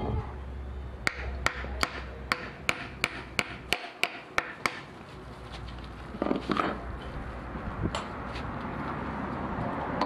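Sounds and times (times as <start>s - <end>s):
hammer tapping on metal: 1.0s - 4.9s.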